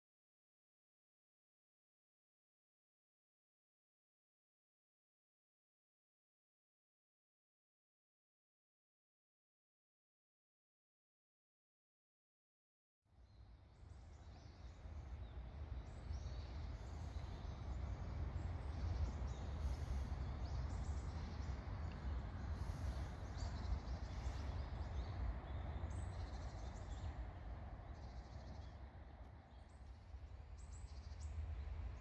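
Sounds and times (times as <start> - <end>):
birds chirping: 13.3 - 32.0
steady low rumble: 13.3 - 32.0.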